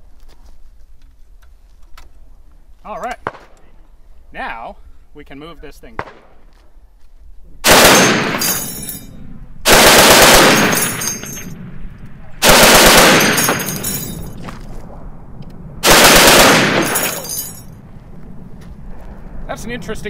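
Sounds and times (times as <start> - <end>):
rolling echo of gunfire: 6.0 - 6.4, 7.6 - 8.6, 9.6 - 11.8, 12.4 - 13.9, 15.8 - 17.2
heavy machine gun bursts: 7.6 - 8.7, 9.6 - 11.5, 12.4 - 13.9, 15.8 - 17.3.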